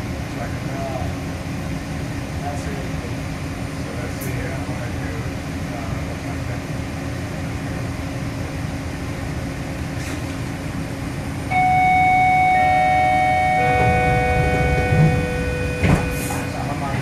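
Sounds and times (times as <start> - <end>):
train car rumbling on track: 0.0 - 17.0
steel wheels squealing: 13.6 - 16.7.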